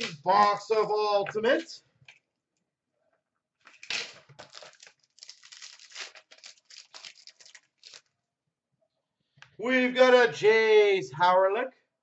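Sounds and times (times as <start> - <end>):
packaging tearing and crinkling: 3.6 - 8.2.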